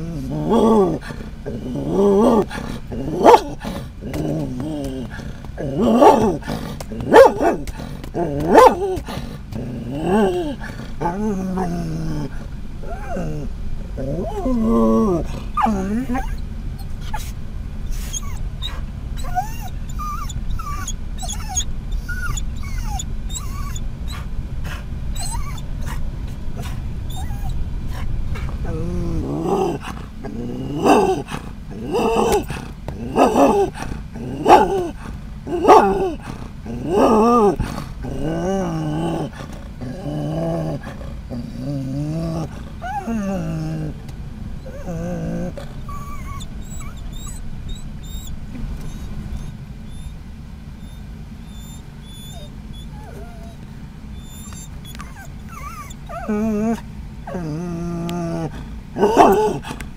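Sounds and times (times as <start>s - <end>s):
dog growly woofs: 0.0s - 17.2s, 18.1s - 50.1s, 50.8s - 59.9s
dog whining: 0.0s - 17.3s, 17.9s - 24.3s, 25.1s - 44.0s, 44.6s - 50.2s, 50.8s - 59.8s
low road rumble: 0.0s - 59.9s
dog barking: 3.2s - 3.6s, 6.0s - 6.4s, 7.0s - 7.8s, 8.4s - 8.8s, 34.4s - 35.0s, 35.6s - 36.2s, 59.0s - 59.6s.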